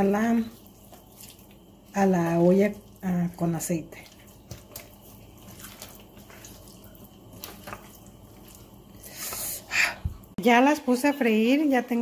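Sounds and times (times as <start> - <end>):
wet squelching of chicken: 0.0 - 9.7.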